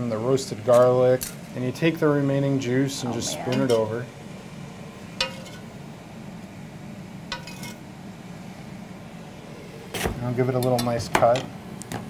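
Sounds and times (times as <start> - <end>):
low steady hum: 0.0 - 11.9
metal spoon clinking in skillet: 5.2 - 5.7, 7.3 - 7.8
spoon scraping skillet: 5.2 - 5.7.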